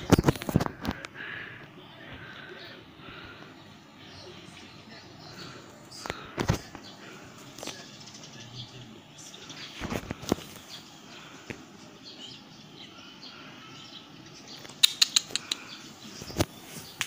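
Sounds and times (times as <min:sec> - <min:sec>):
sharp clicks and taps: 0:14.6 - 0:15.7.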